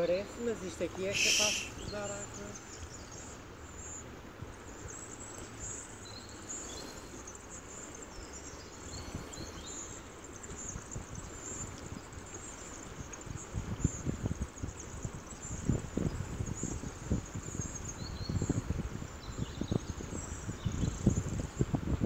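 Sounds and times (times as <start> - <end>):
river water flowing over stones: 0.0 - 15.4
faint high chirps: 1.1 - 2.3
wind buffeting microphone: 8.2 - 22.0.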